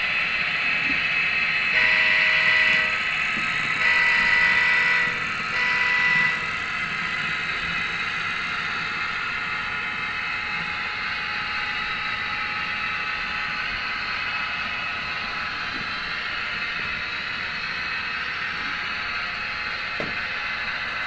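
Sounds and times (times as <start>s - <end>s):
model trains whirring on track: 0.0s - 21.0s
model locomotive horn blasts: 1.7s - 6.8s.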